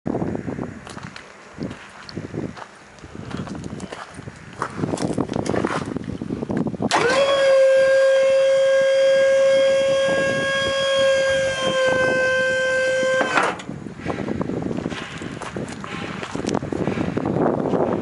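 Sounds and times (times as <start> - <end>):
hydraulic pump motor whining: 6.9 - 13.8.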